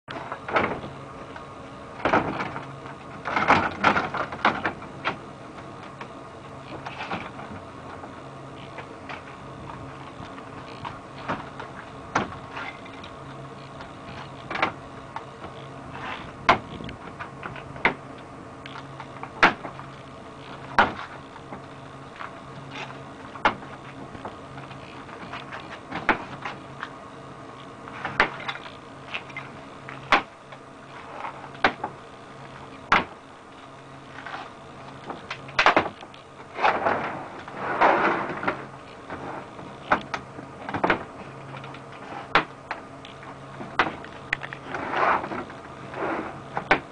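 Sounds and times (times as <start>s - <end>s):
low hum: 0.1s - 46.9s
plastic rubbing scrape: 15.9s - 16.9s, 36.5s - 39.6s, 44.4s - 46.6s.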